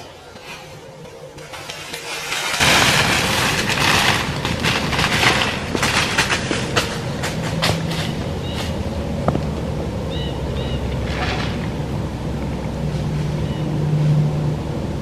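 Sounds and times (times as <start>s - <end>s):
dry corn stalks crackling and snapping: 0.1s - 9.7s.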